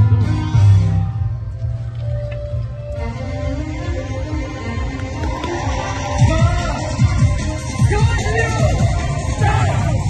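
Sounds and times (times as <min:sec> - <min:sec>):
dance music with heavy bass: 0:02.6 - 0:10.0.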